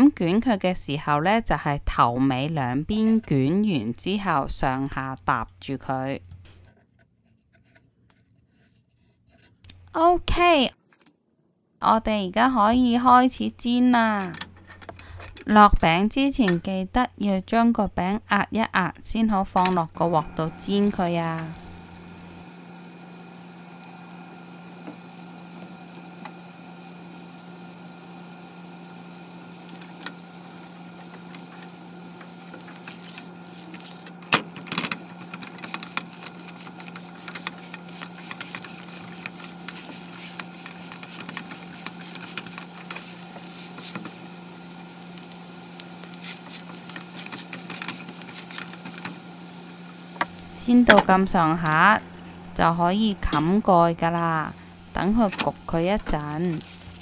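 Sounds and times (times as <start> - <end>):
low hum: 19.7 - 46.8, 47.6 - 57.0
pancake sizzling and crackling in oil: 20.4 - 50.9, 54.6 - 57.0.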